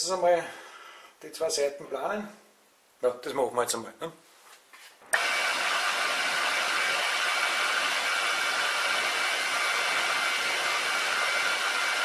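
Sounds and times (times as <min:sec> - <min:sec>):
milling machine whirring: 0:05.2 - 0:12.0.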